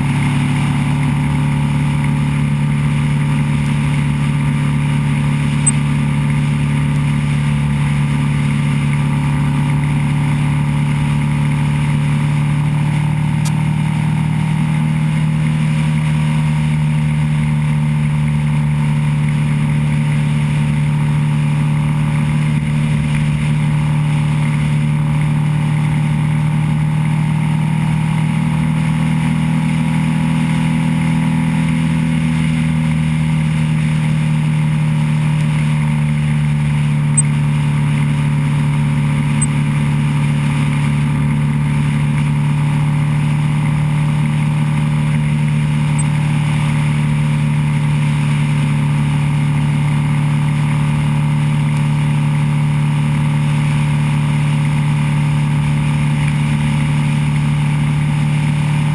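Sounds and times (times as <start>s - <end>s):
road noise: 0.0s - 16.5s
motorcycle engine running: 0.0s - 58.9s.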